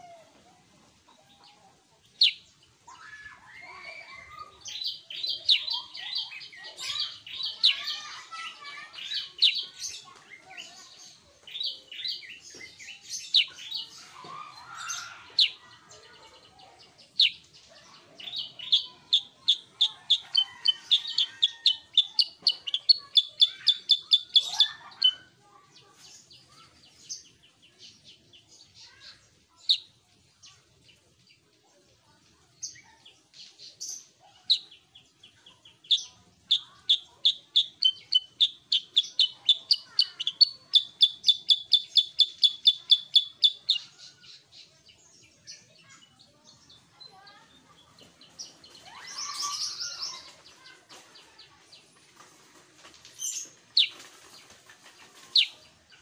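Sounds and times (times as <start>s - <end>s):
bird singing high chirps: 2.2s - 25.3s, 33.8s - 50.7s, 55.1s - 56.0s.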